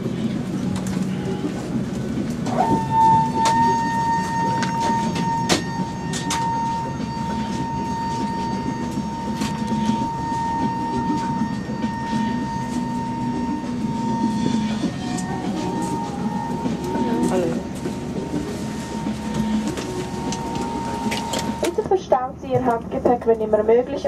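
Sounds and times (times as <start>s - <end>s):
aircraft cabin hum and whine: 0.0s - 24.0s.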